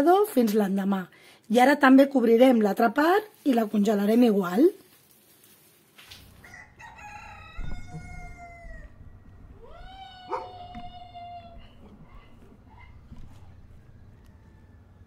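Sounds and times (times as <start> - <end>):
rooster crowing: 6.4 - 15.0.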